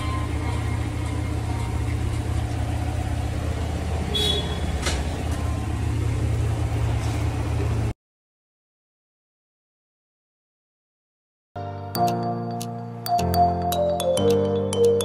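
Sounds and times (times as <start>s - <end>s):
low engine-like hum: 0.0s - 7.9s.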